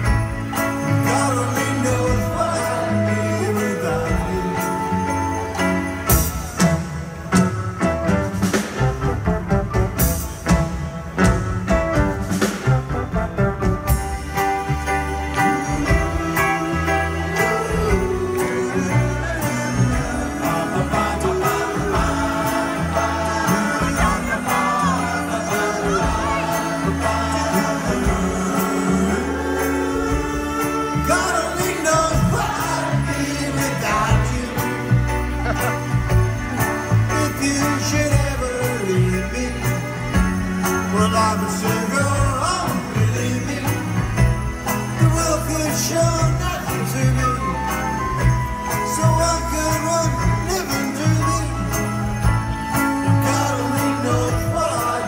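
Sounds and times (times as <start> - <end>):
people singing: 0.0 - 6.4, 15.2 - 35.7, 48.7 - 55.0
sleigh bells: 0.0 - 7.4, 13.9 - 55.0
live band playing instrumental: 0.0 - 55.0.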